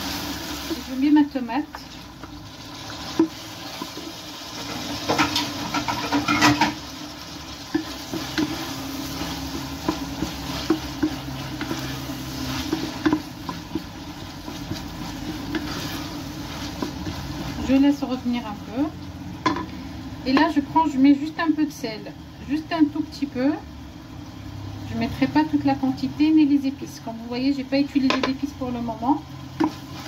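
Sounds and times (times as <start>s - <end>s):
vegetables frying in oil: 0.0s - 30.0s
wooden spoon scraping a pot: 2.9s - 18.2s, 29.5s - 30.0s.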